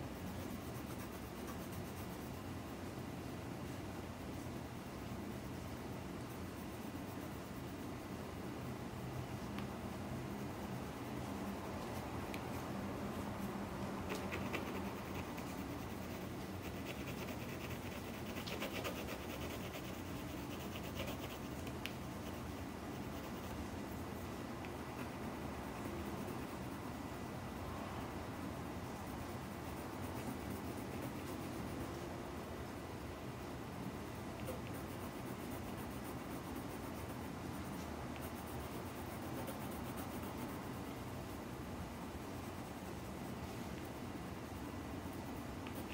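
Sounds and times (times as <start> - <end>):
steady low hum: 0.0 - 45.9
pencil scratching on paper: 0.1 - 2.4, 14.0 - 23.6, 34.4 - 40.7.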